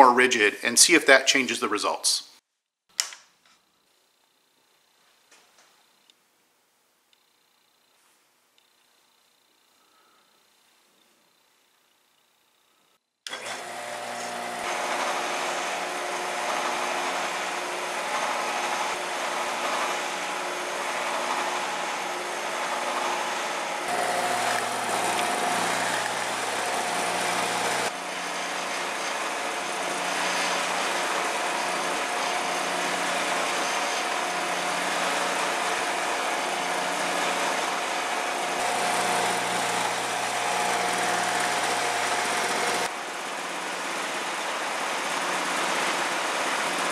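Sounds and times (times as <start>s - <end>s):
motor humming: 13.3s - 42.9s.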